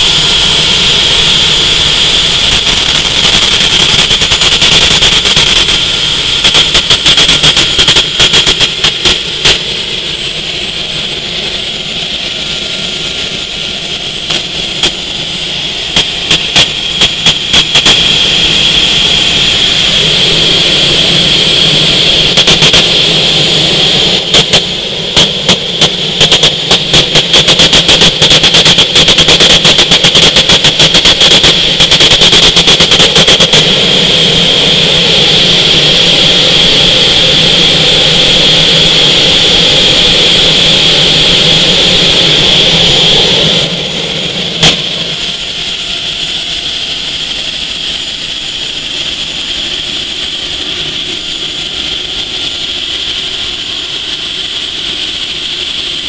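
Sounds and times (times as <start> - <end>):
gas turbine whining: 0.0 - 56.0
sharp crackling pops: 1.9 - 9.7, 14.3 - 15.0, 15.9 - 18.1.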